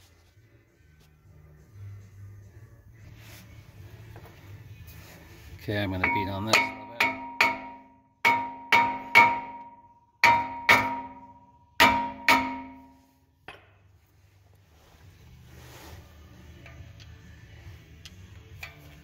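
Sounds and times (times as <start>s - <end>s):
metal brake disc struck ringing: 5.9s - 13.7s.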